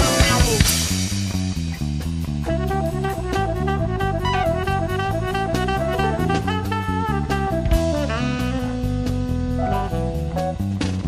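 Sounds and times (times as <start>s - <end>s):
instrumental background music: 0.0s - 11.0s.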